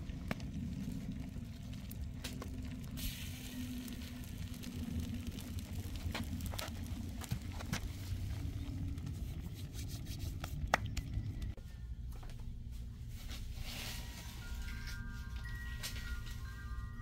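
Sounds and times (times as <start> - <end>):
wood fire crackling and popping: 0.0 - 11.6
low rumble: 0.0 - 17.0
ringing chime tones: 13.8 - 17.0.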